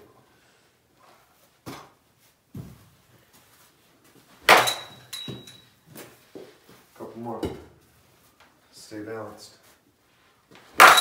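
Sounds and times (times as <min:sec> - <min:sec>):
metal bat hitting ball: 0:04.5 - 0:05.6, 0:10.8 - 0:11.0.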